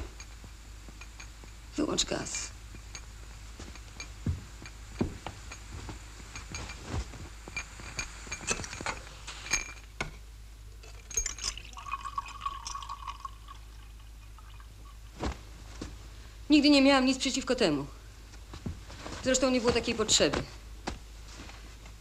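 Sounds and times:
glass and crockery clinking: 0:06.3 - 0:09.9, 0:10.8 - 0:14.7
water pouring into a glass: 0:10.8 - 0:14.9.

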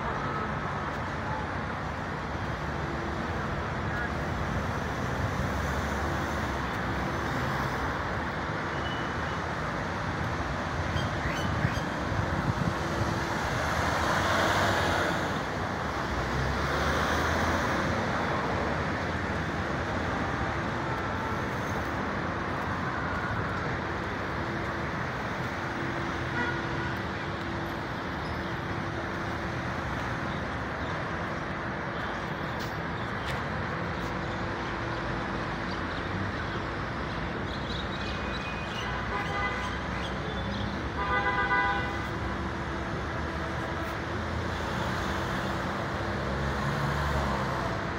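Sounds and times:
cars driving past: 0:09.9 - 0:37.5, 0:40.2 - 0:47.9.

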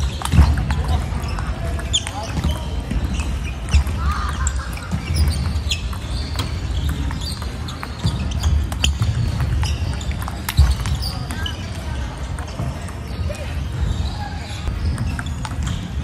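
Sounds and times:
sneakers squeaking on floor: 0:00.0 - 0:16.0
ping pong ball clicking: 0:08.7 - 0:11.1.

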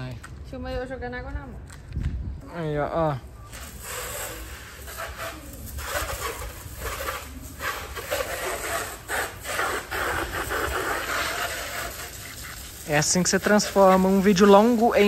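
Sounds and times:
hose water spraying and splashing: 0:03.5 - 0:15.0.

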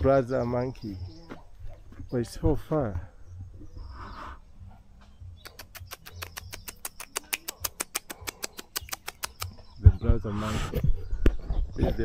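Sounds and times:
bird clicking chirps: 0:05.3 - 0:09.9.

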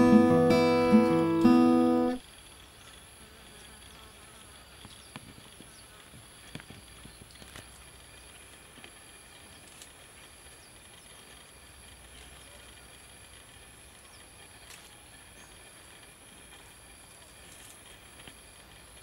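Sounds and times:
high-pitched insect drone: 0:00.0 - 0:07.1.

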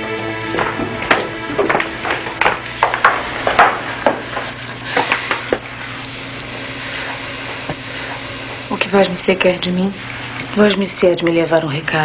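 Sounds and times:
footsteps on wooden stairs: 0:00.2 - 0:05.6.

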